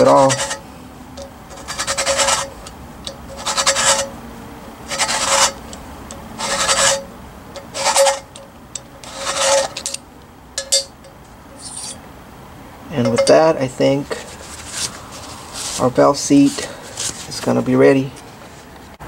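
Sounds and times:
valve seat cutter scraping metal: 0:01.5 - 0:04.2, 0:04.8 - 0:05.8, 0:06.4 - 0:10.0.

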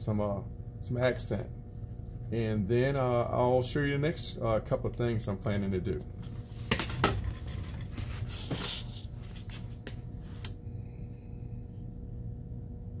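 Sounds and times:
steady low hum: 0:00.0 - 0:13.0
board scraping on a tabletop: 0:06.4 - 0:09.6.

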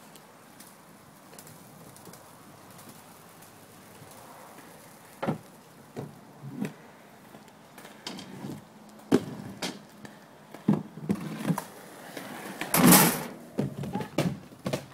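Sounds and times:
skateboard wheels rolling: 0:00.0 - 0:14.9
skateboard clacks and knocks: 0:10.6 - 0:14.9.

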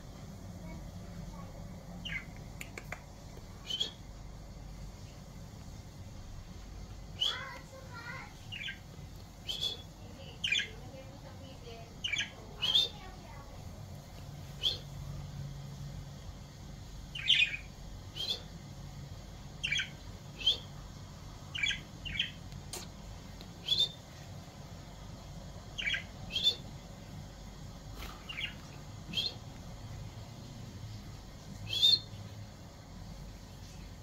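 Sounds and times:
faint low hum: 0:00.0 - 0:34.0
budgerigars chirping: 0:02.0 - 0:02.3, 0:07.2 - 0:08.8, 0:09.5 - 0:10.8, 0:12.0 - 0:13.1, 0:14.6 - 0:14.9, 0:17.2 - 0:18.5, 0:19.6 - 0:20.7, 0:21.5 - 0:22.4, 0:25.8 - 0:26.7, 0:28.3 - 0:29.4, 0:31.7 - 0:32.2.

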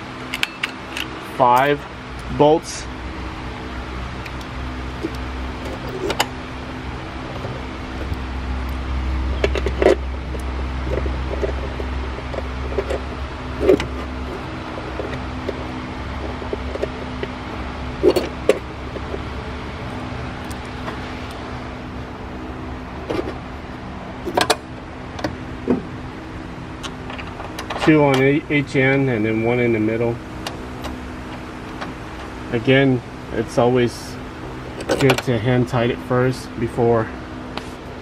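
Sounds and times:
steady background hum: 0:00.0 - 0:38.0
light metallic clicks and knocks: 0:00.2 - 0:01.9, 0:34.7 - 0:35.4.

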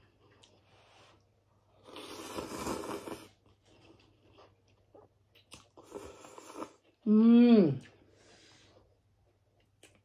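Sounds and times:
wet chewing with mouth clicks: 0:00.0 - 0:07.0, 0:09.2 - 0:10.0
noodles being slurped: 0:01.8 - 0:04.2.

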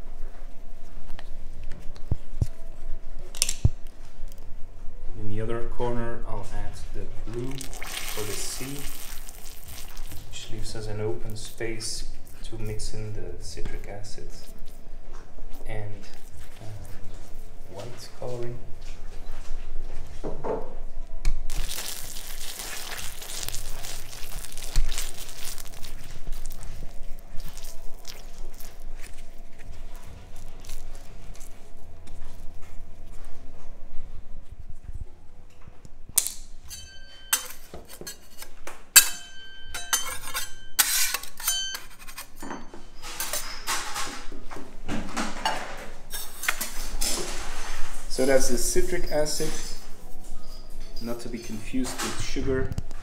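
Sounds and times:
candy crackling and scraping: 0:07.4 - 0:11.4, 0:21.5 - 0:33.1
metal utensils clinking: 0:36.7 - 0:44.1.

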